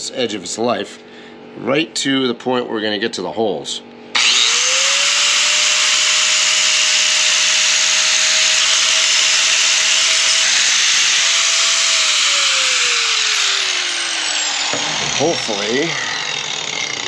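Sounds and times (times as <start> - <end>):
angle grinder grinding metal: 4.2 - 17.0
grinder spinning down: 4.2 - 17.0.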